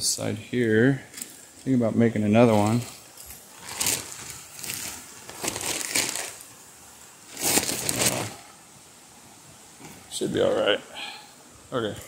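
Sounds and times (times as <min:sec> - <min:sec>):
plastic tarp crinkling: 0:02.3 - 0:06.6, 0:07.3 - 0:08.5.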